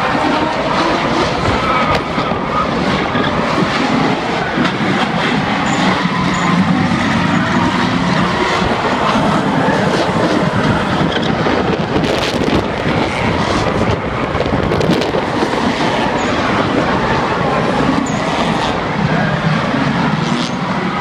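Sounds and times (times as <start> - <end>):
tyres squealing: 0.0 - 11.5
car engines at high revs: 0.0 - 21.0.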